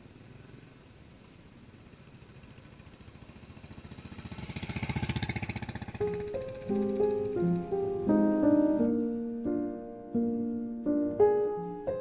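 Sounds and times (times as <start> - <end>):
motorcycle engine running: 0.0 - 9.2.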